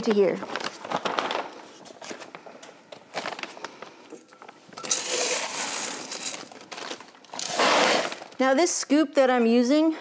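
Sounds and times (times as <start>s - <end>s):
plastic bags rustling: 0.0s - 8.6s
coffee beans scooped with metal bowl: 4.8s - 6.5s.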